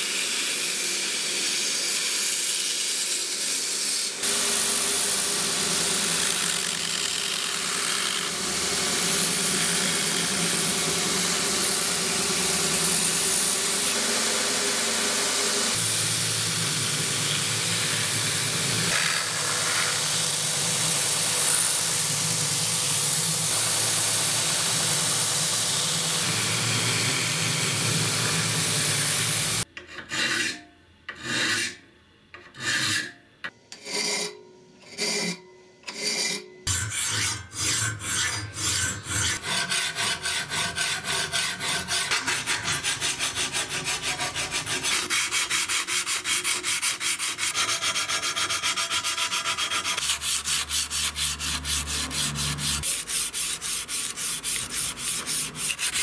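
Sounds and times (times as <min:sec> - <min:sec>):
belt grinder grinding steel: 0:04.2 - 0:29.6, 0:36.7 - 0:56.0
hand file scraping metal: 0:17.2 - 0:31.8, 0:32.4 - 0:33.1, 0:33.7 - 0:56.0
sandpaper rubbing on metal: 0:36.8 - 0:56.0.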